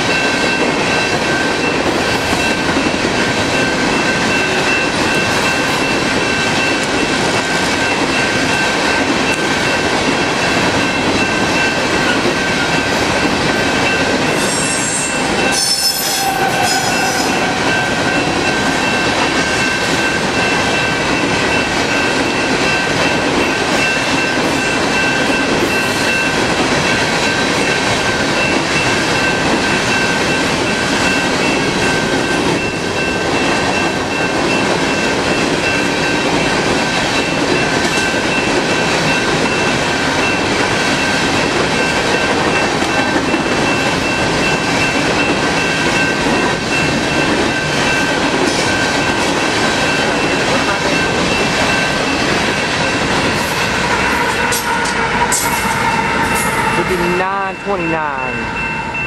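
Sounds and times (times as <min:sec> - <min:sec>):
train wheels rumbling on rails: 0:00.0 - 0:59.0
high-pitched wheel squeal: 0:14.4 - 0:18.1
steady high-pitched tone: 0:41.8 - 0:59.0.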